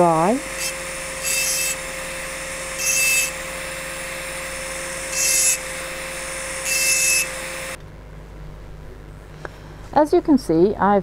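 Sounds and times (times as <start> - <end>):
rotary tool whine: 0.0 - 10.0
burr grinding on glass: 0.4 - 7.8.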